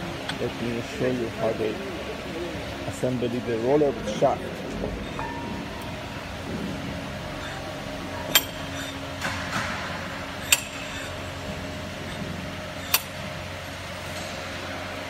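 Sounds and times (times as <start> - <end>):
workshop hum: 0.0 - 15.0
metal shafts clinking: 7.4 - 9.7, 10.3 - 13.3.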